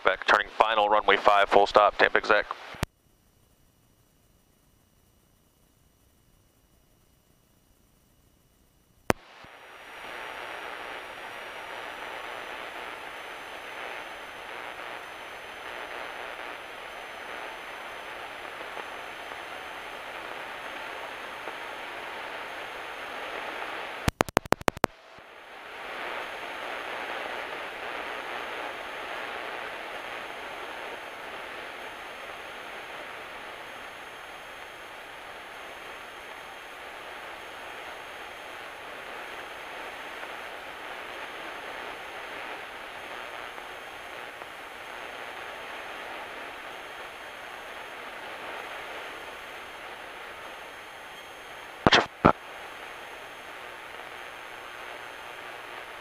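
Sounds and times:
sharp clicks: 0:24.1 - 0:24.9, 0:51.9 - 0:52.4.

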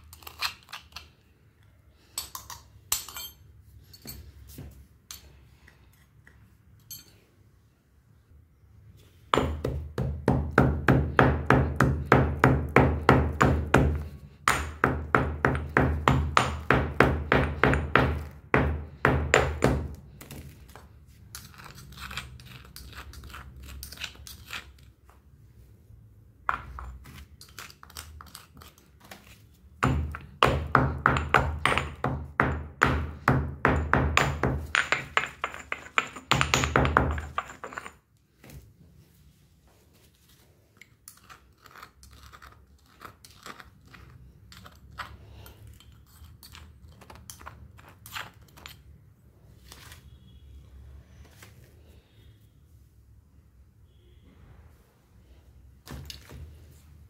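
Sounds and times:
metal spoon scraping in mortar: 0:00.0 - 0:01.2, 0:21.2 - 0:25.0, 0:26.8 - 0:29.4, 0:40.8 - 0:49.0
stone pestle pounding in mortar: 0:09.4 - 0:20.0, 0:29.8 - 0:37.6.

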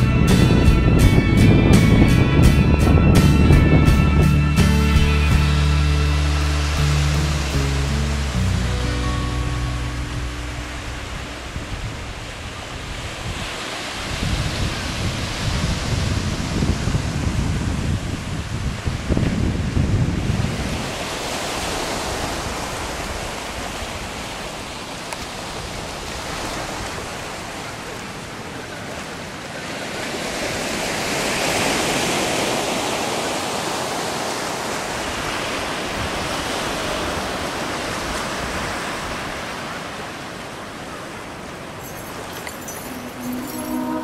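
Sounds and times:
wind rumbling on microphone: 0:00.0 - 0:04.6, 0:09.8 - 0:29.4
surf washing up beach: 0:05.3 - 0:44.0.

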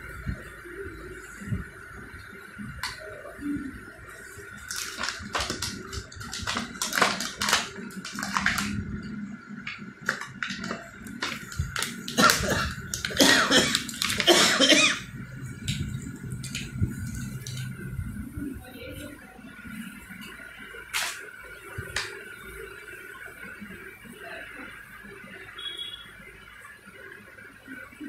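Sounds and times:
plastic packaging crinkling: 0:04.5 - 0:15.0.

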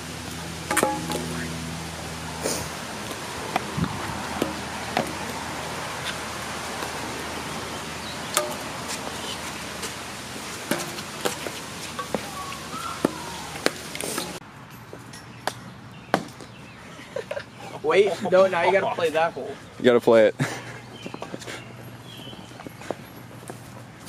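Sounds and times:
golf putter striking ball: 0:00.7 - 0:01.4.

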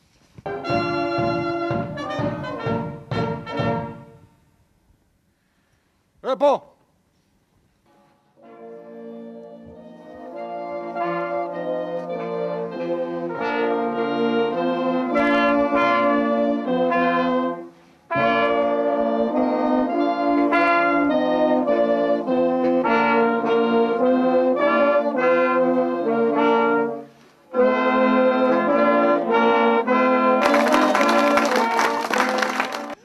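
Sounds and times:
brass chords: 0:00.5 - 0:04.3, 0:08.4 - 0:33.0
applause: 0:30.4 - 0:33.0.

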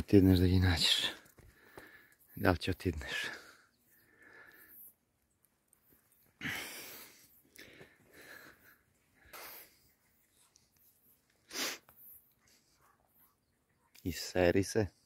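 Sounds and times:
heavy breathing: 0:01.3 - 0:02.3, 0:03.2 - 0:05.0, 0:06.2 - 0:10.2.

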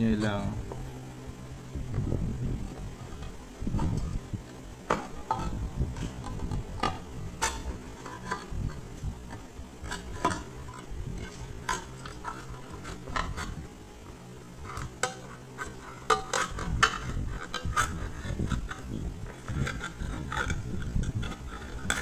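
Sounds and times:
spoon scraping a tin can lid: 0:04.9 - 0:08.5, 0:14.7 - 0:22.0.

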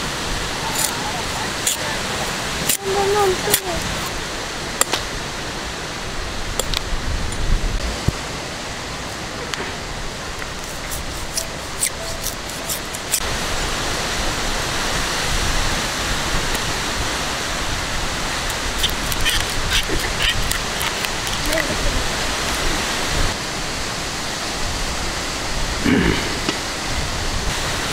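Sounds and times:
rushing wind: 0:00.0 - 0:27.9
blade cutting into stem: 0:00.7 - 0:01.0, 0:01.6 - 0:01.8, 0:10.4 - 0:13.2, 0:18.5 - 0:21.8
wind rumble on microphone: 0:05.9 - 0:08.3, 0:13.2 - 0:27.9.

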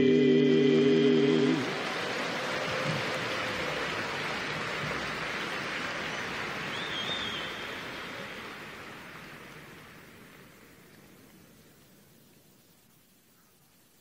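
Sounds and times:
audience applauding: 0:00.8 - 0:11.9
short high whistle: 0:06.7 - 0:08.0.

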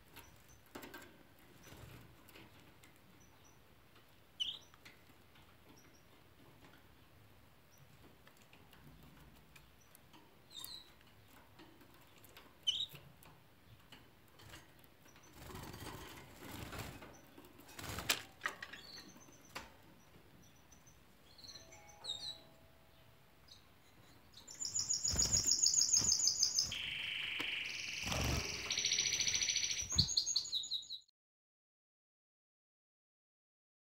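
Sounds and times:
canaries chirping: 0:00.0 - 0:31.1
canary singing rapid trills: 0:04.4 - 0:04.7, 0:23.5 - 0:31.1.

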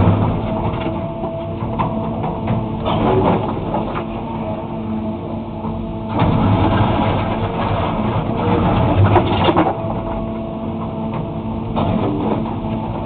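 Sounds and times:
diesel engine under load: 0:00.0 - 0:13.0.

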